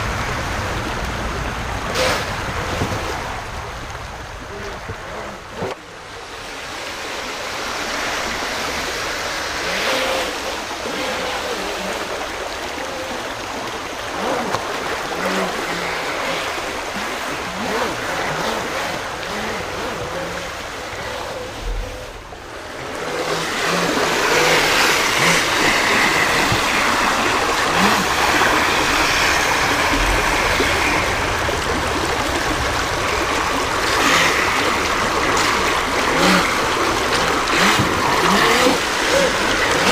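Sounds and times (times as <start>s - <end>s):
water rushing over rocks: 0.0s - 39.9s
small boat electric motor: 4.4s - 39.9s.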